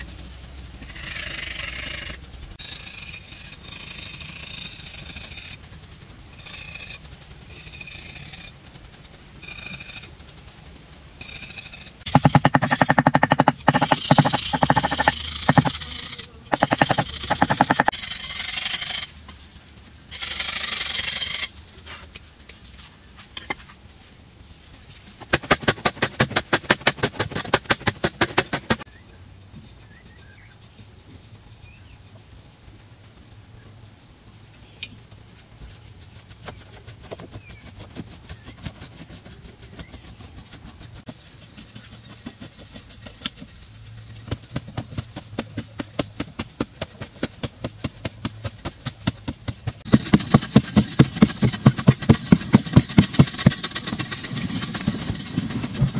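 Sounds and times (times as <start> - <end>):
metal tools scraping sandstone: 0.8 - 5.7, 6.3 - 10.2, 11.2 - 19.4, 20.1 - 22.2
thin steady high tone: 29.0 - 48.1.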